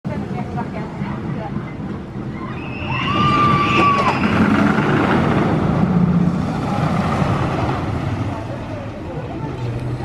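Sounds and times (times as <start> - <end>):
roller coaster wheels rumbling: 0.1 - 10.0
riders screaming: 2.3 - 5.0.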